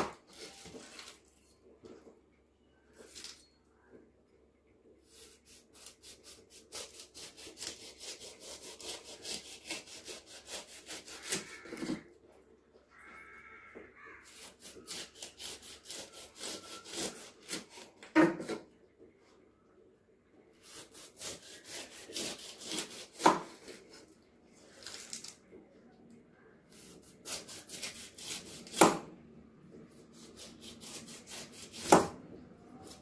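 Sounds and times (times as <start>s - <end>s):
knife sawing through pineapple rind: 5.1s - 11.9s, 14.2s - 17.9s, 20.6s - 23.8s, 26.7s - 28.9s, 30.1s - 32.1s.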